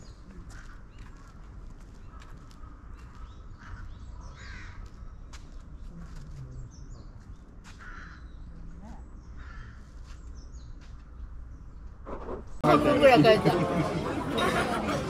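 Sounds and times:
footstep ticks: 0.3s - 3.8s, 4.6s - 5.8s
crows cawing: 0.4s - 1.4s, 2.0s - 5.0s, 7.7s - 8.3s, 9.4s - 9.9s.

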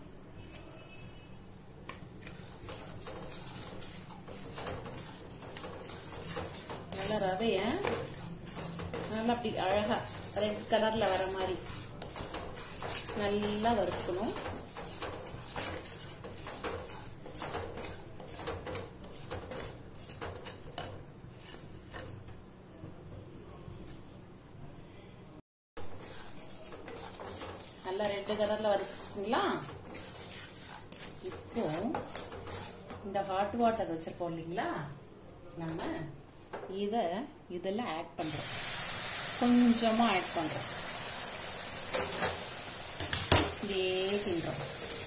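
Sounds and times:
wooden spatula scraping pan: 1.9s - 22.4s, 25.8s - 34.2s, 43.4s - 45.0s.

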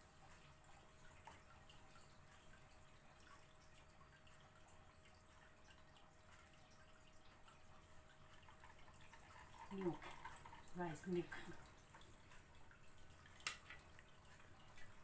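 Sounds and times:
liquid trickling through strainer: 0.0s - 15.0s
small ticks: 0.0s - 15.0s.

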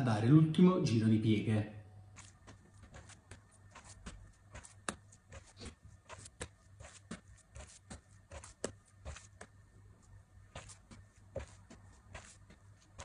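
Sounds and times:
faint low hum: 0.0s - 13.0s
wet dough slapping and squelching: 2.2s - 9.6s.

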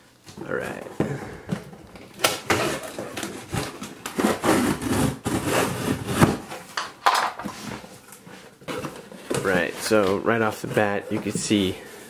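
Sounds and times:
knife slitting packing tape: 2.2s - 6.4s.

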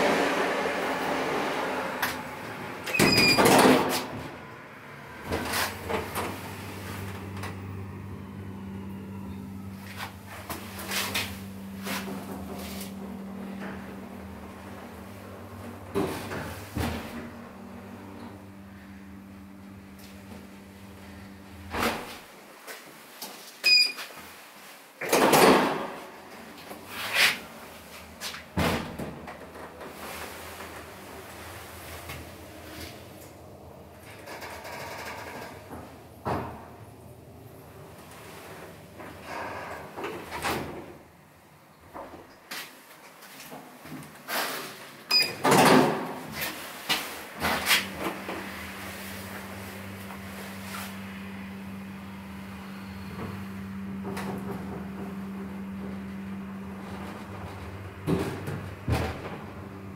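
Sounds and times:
lift doors sliding shut: 0.0s - 22.3s, 25.0s - 41.1s, 44.3s - 51.0s, 51.6s - 59.9s
low hum of lift drive: 0.0s - 22.3s, 26.2s - 42.2s, 47.2s - 59.9s
loud door clatter: 2.8s - 4.3s.

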